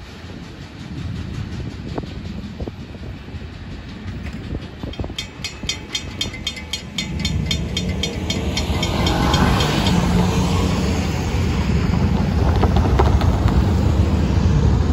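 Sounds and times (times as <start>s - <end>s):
crossing bells ringing: 4.8s - 11.6s
cars driving over crossing: 6.2s - 14.9s.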